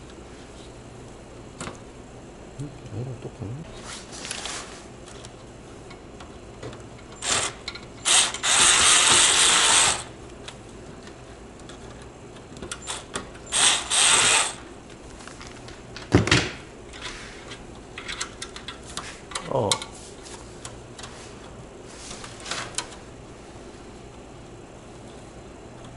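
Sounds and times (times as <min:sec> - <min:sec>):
cordless screwdriver whirring: 0:07.2 - 0:10.1, 0:12.9 - 0:14.6.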